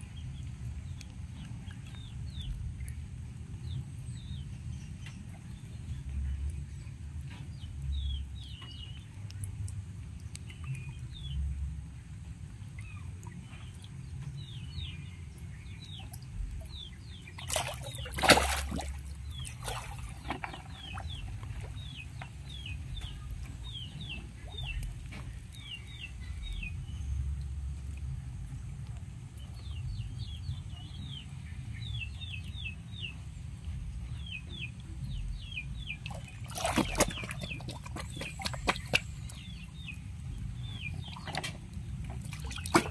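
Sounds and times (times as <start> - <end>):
birds chirping: 0.0 - 11.6, 12.7 - 42.9
water splashing: 15.9 - 25.8, 35.8 - 42.9.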